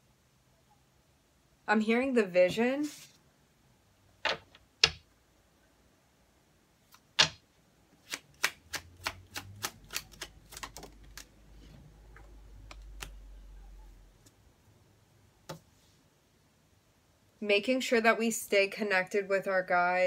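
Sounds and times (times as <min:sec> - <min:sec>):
cards being shuffled: 0:08.0 - 0:11.7.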